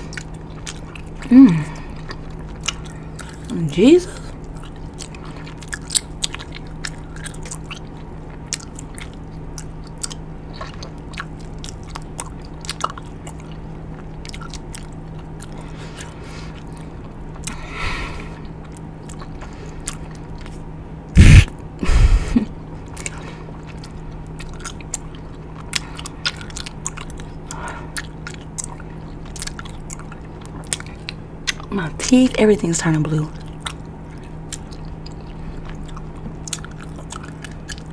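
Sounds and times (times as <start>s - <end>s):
gum chewing and smacking: 0.0s - 21.7s, 22.6s - 31.8s, 33.0s - 37.9s
steady low hum: 0.0s - 37.9s.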